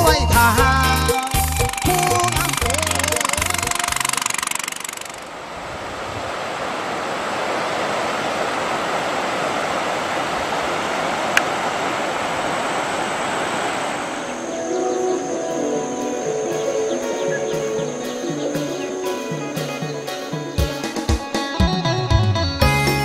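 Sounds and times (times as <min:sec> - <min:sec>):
small outboard motor running: 0:01.4 - 0:05.3
sharp click: 0:01.6 - 0:05.3
steady rushing noise: 0:01.7 - 0:18.2.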